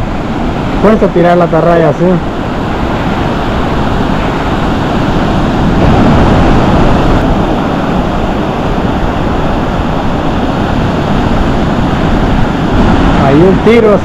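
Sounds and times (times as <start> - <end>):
surf washing up the beach: 0.0 - 14.0
wind buffeting microphone: 0.0 - 14.0.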